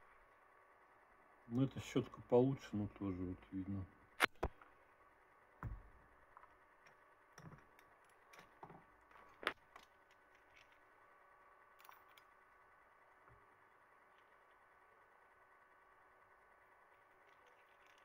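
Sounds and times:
faint clicks of small metal parts: 6.2 - 11.0, 11.6 - 14.9, 16.6 - 18.0.

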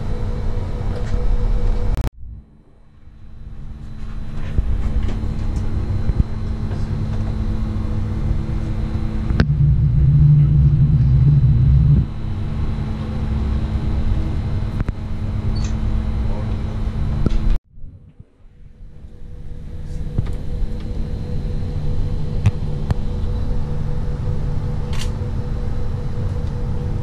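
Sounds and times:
faint high whine: 0.0 - 17.2
louder low rumble: 0.0 - 27.0
ship engine rumble and hum: 0.0 - 27.0.

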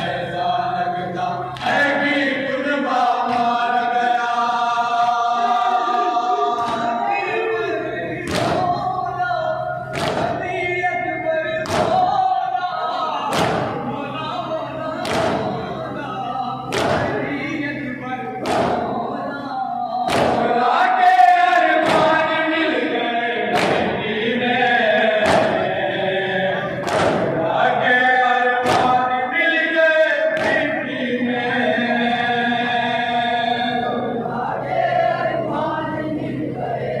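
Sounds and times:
men chanting in unison: 0.0 - 37.0
chest-beating slaps: 8.2 - 8.8, 9.9 - 10.4, 11.6 - 12.0, 13.3 - 13.8, 15.0 - 15.5, 16.7 - 17.2, 18.4 - 19.0, 20.1 - 20.5, 21.8 - 22.2, 23.5 - 24.0, 25.2 - 25.6, 26.8 - 27.4, 28.6 - 29.0, 30.4 - 30.7.

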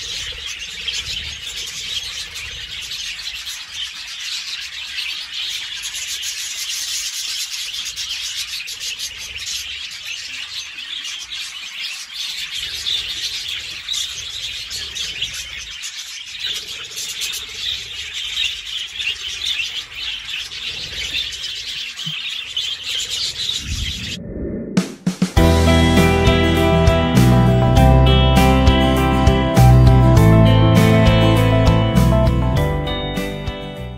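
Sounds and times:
flock of budgerigars chattering: 0.0 - 24.2.

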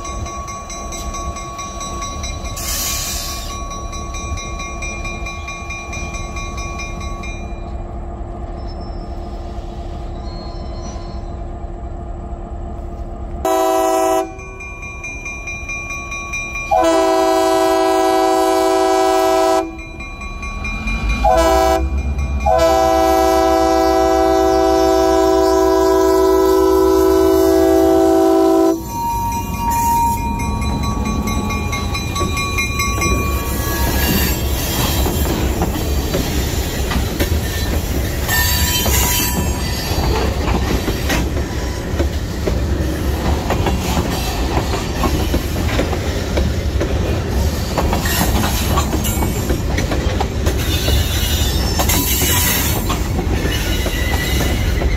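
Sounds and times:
locomotive air horn blasts: 13.4 - 14.4, 16.7 - 19.8, 21.2 - 29.4
train wheels clattering on rails: 28.7 - 54.9.

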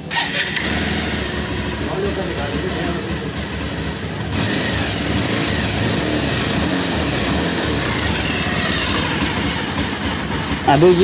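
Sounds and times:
motorcycle engine running: 0.0 - 11.0.

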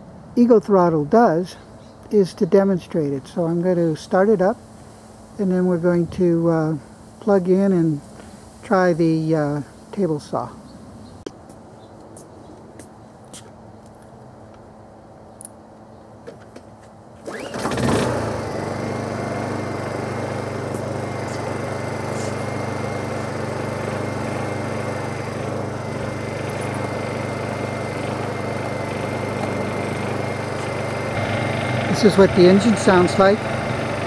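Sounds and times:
generator engine pull-started and running: 16.2 - 34.0.

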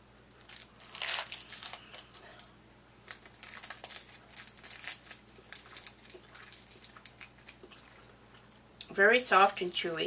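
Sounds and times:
wrapper crinkling: 0.4 - 2.4, 3.0 - 8.1, 9.2 - 10.0.

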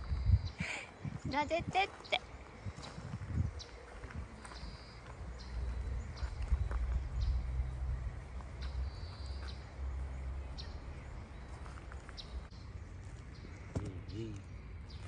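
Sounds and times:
small birds chirping: 0.0 - 15.0
footsteps on gravel: 1.2 - 7.4, 8.3 - 9.6, 11.3 - 13.9.

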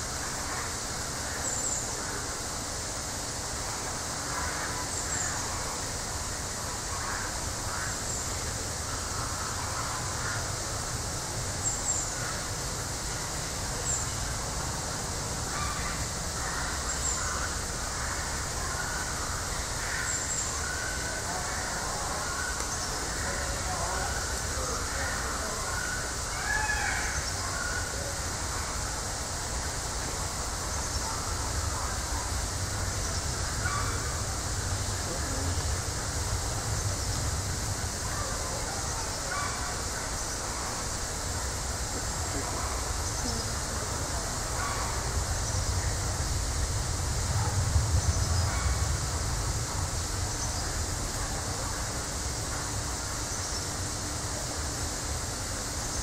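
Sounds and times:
steady hissing noise: 0.0 - 56.0
low rumble: 44.8 - 51.2.

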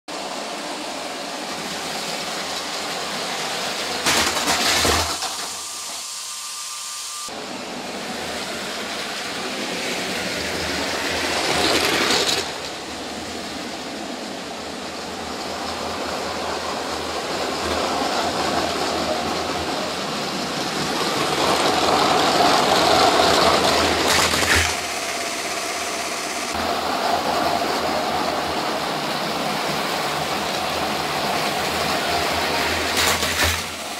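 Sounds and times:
toy train motors whirring: 8.4 - 14.0, 15.3 - 33.9
wheels rattling over track joints: 9.4 - 13.8, 15.0 - 33.9.

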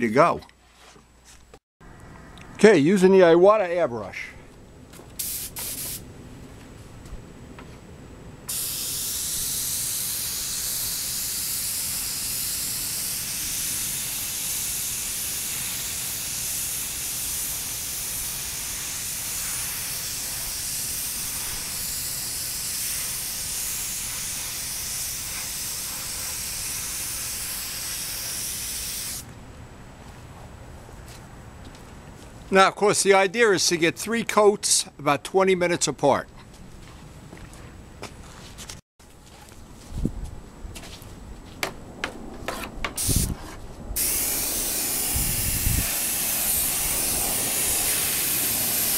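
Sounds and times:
airbrush air hiss: 5.2 - 6.0, 8.5 - 29.2, 43.0 - 43.3, 44.0 - 48.9.

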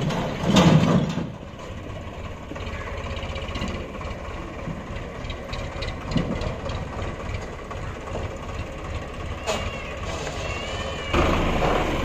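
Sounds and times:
metallic clanks and rattles: 0.0 - 2.0, 3.1 - 10.3
diesel engine under load: 0.0 - 12.0.

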